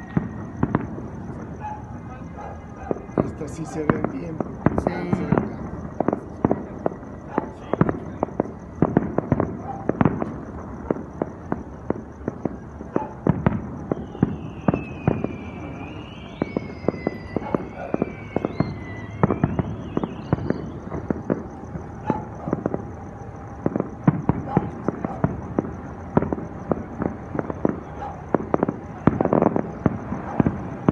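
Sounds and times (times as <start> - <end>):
fireworks bangs and pops: 0.0 - 30.9
high wavering whistle: 13.9 - 20.8.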